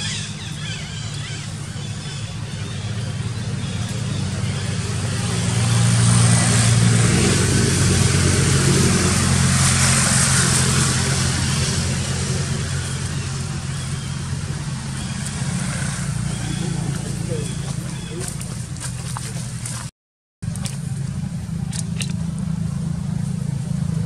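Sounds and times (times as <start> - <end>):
vehicle engine humming: 0.0 - 24.0.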